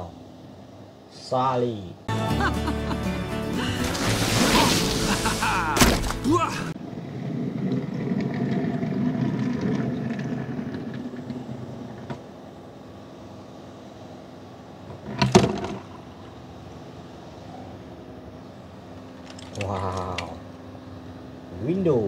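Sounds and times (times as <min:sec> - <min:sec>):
splash into water: 0:03.7 - 0:06.4.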